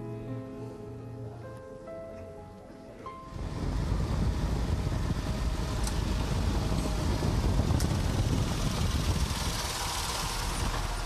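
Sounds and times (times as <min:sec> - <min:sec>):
vehicle engine rumbling: 0:03.3 - 0:11.0.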